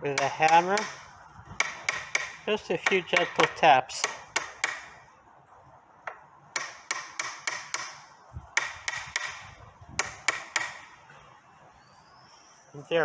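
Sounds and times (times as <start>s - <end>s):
hammer tapping on metal: 0.2s - 1.0s, 1.6s - 4.9s, 6.0s - 8.0s, 8.6s - 9.4s, 10.0s - 10.9s.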